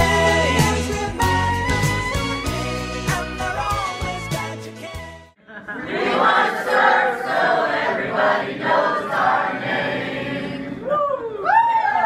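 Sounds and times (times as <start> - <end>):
crowd cheering: 10.7 - 12.0
high whoops: 10.8 - 12.0.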